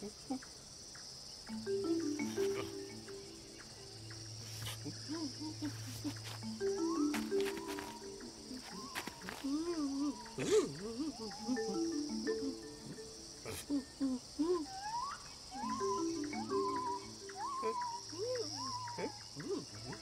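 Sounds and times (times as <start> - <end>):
soft held music notes: 0.0 - 14.6, 15.5 - 20.0
insect chirring: 0.0 - 20.0
short gliding calls: 1.5 - 20.0.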